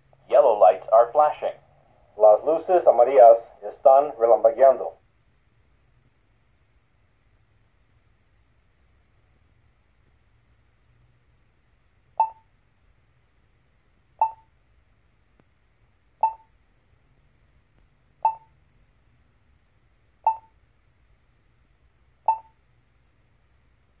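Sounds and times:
pedestrian button locator beeps: 12.2 - 12.5, 14.2 - 14.5, 16.2 - 16.5, 18.2 - 18.5, 20.2 - 20.6, 22.3 - 22.6.

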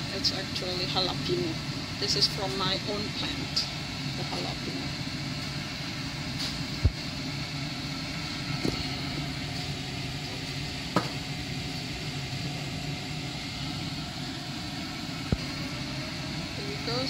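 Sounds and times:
kitchen appliance humming: 0.0 - 17.0.

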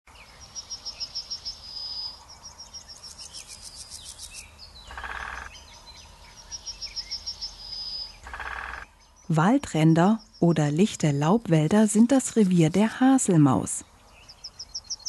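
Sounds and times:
other bird calls: 3.1 - 5.6.

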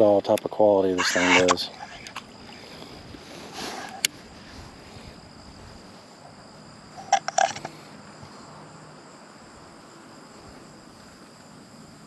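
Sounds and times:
insects chorus: 0.0 - 12.0
rattle of sharp clicks: 7.0 - 7.8.

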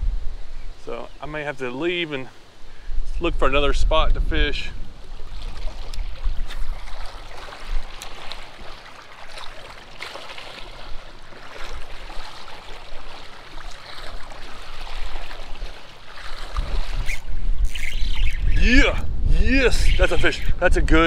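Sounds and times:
river current rippling: 4.2 - 20.6.

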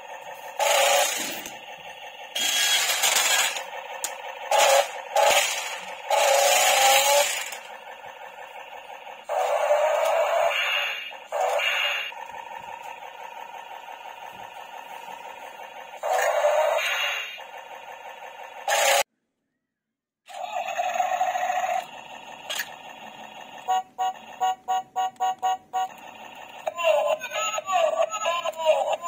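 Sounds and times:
small electric motors whirring: 0.3 - 13.6, 14.3 - 19.1.

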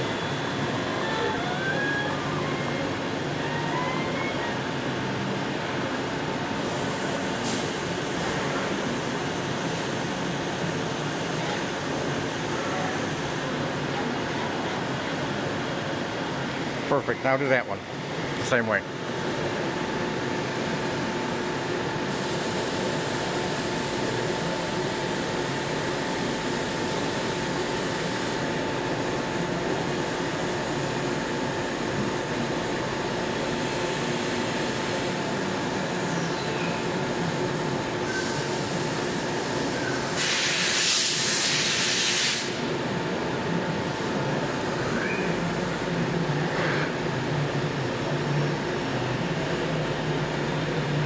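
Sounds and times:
loud hiss: 40.2 - 42.6.

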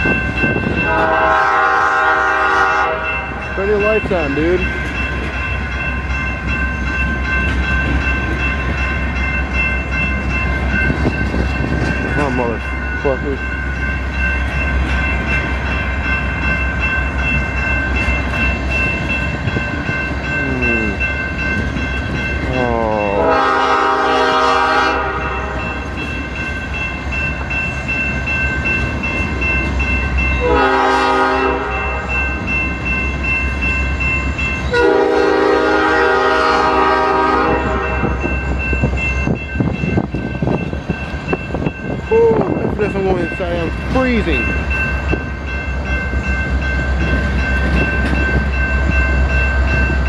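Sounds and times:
freight train rumbling and clacking: 0.0 - 50.0
locomotive horn blasts: 0.8 - 3.4, 23.1 - 25.6, 30.4 - 32.1, 34.7 - 38.2.

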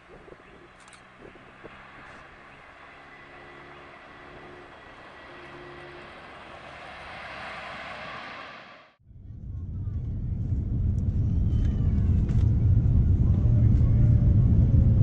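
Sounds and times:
jet engines rushing with whine: 0.0 - 9.0.

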